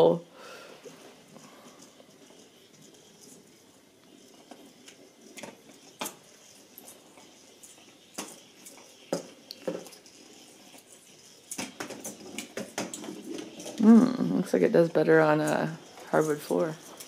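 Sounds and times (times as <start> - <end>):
motorized ball rolling over carpet: 0.0 - 17.0
ball knocking and clattering: 1.3 - 17.0.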